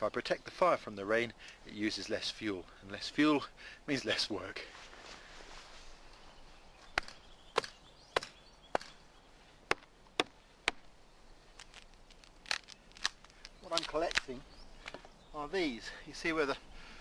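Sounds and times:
hatchet chopping into log: 7.0 - 9.0, 9.7 - 10.9.

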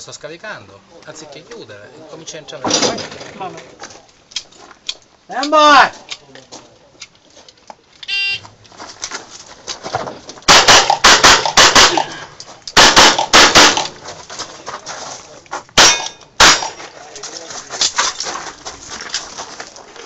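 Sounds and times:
rapid pistol fire: 10.5 - 12.2, 12.8 - 13.9, 15.8 - 16.8.

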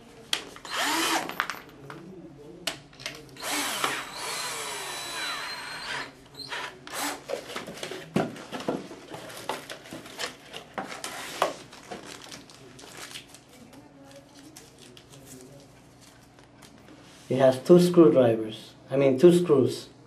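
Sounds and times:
cordless drill driving a screw: 0.6 - 1.3, 3.4 - 7.2.

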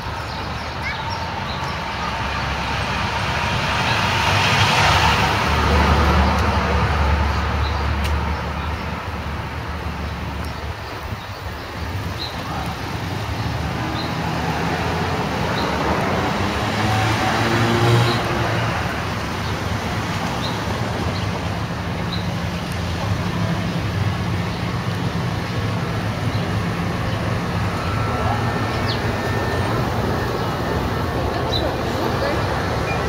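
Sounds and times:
passing cars: 0.0 - 33.0
vehicle passing by: 1.4 - 8.8, 12.4 - 22.0.

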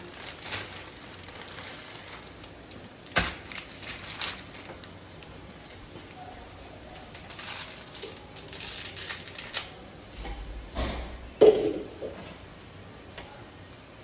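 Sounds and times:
dry spaghetti snapping: 0.0 - 5.8, 7.0 - 9.8.

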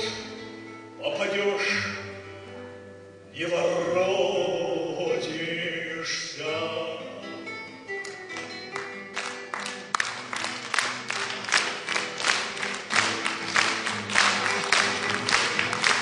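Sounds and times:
man singing into a microphone: 1.0 - 2.1, 3.3 - 7.4
instrumental accompaniment: 6.7 - 16.0
audience clapping: 8.0 - 16.0.

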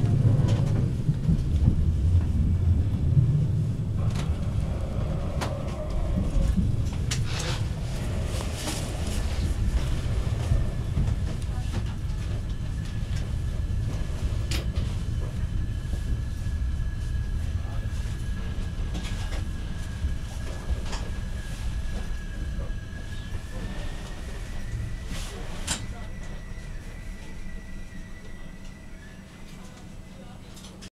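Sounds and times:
train rumbling: 0.0 - 30.9
thin steady squeal: 13.0 - 30.4.

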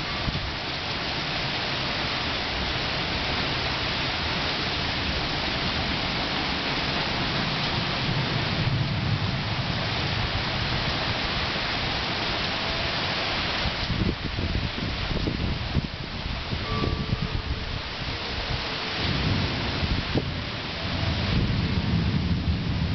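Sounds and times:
heavy rain falling: 0.0 - 22.9
low rumble of thunder: 7.0 - 11.6, 13.9 - 22.9.

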